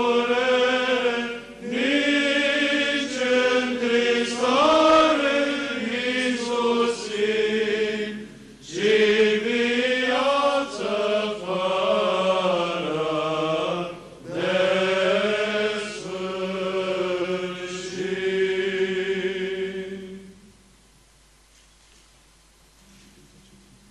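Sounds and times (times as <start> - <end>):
male choir chanting: 0.0 - 20.4.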